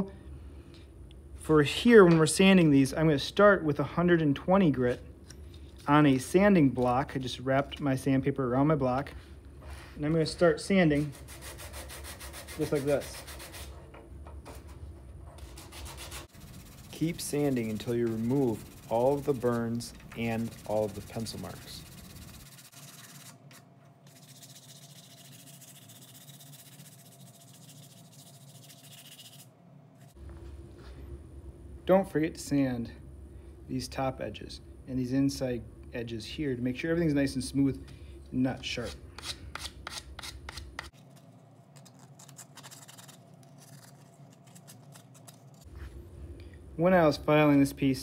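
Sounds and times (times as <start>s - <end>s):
sandpaper rasping on wood: 11.0s - 13.8s, 15.4s - 23.4s, 24.1s - 29.5s.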